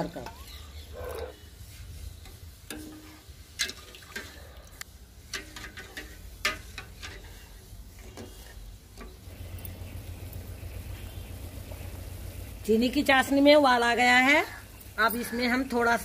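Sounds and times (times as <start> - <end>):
water pouring: 3.6 - 4.8.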